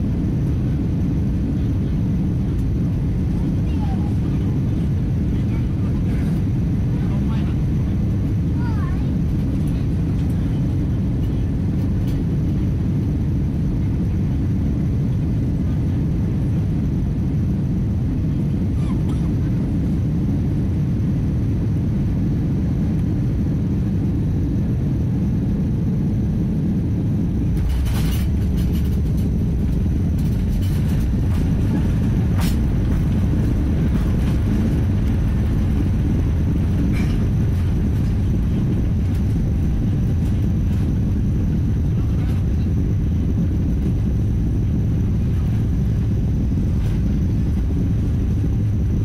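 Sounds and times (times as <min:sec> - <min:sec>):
aircraft cabin rumble: 0:00.0 - 0:49.0
knocks and rattles: 0:27.5 - 0:41.0.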